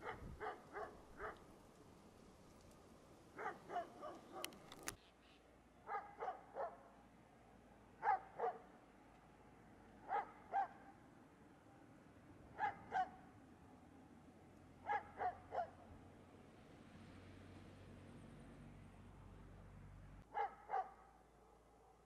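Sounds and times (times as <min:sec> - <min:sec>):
dog barking: 0:00.0 - 0:01.4, 0:03.4 - 0:04.6, 0:05.8 - 0:06.9, 0:08.0 - 0:08.7, 0:10.0 - 0:11.0, 0:12.6 - 0:13.2, 0:14.8 - 0:15.8, 0:20.3 - 0:22.0.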